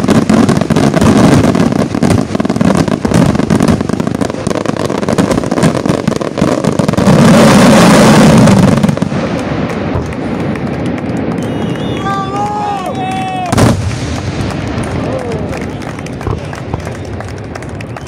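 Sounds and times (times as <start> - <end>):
firework shells bursting: 0.0 - 12.4
firework crackling: 0.0 - 18.0.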